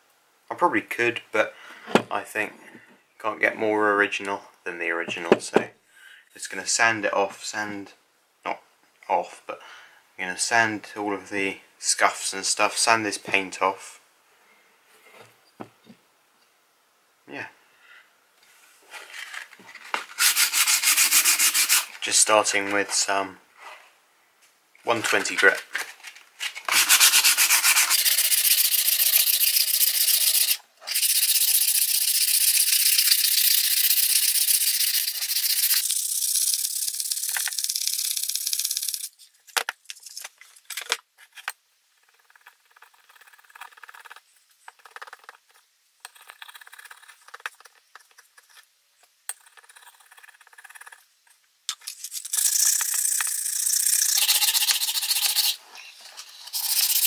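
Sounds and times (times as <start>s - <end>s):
sandpaper rubbing on wood: 20.2s - 22.0s, 26.7s - 32.5s, 53.8s - 55.6s, 56.2s - 57.0s.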